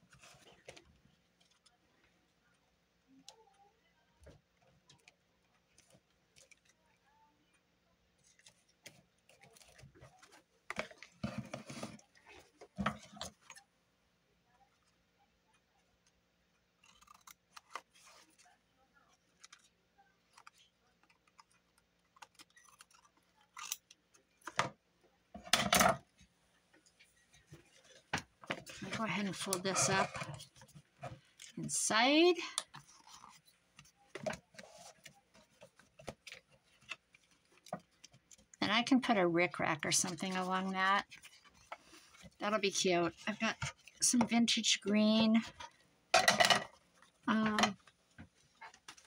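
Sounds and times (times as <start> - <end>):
paper clicks and rustles: 3.2 - 6.9, 8.2 - 13.6, 16.8 - 24.7, 32.4 - 38.6, 46.7 - 49.0.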